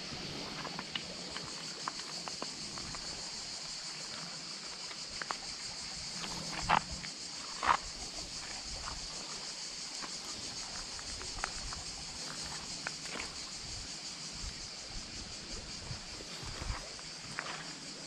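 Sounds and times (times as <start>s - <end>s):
insects buzzing: 0.0s - 18.0s.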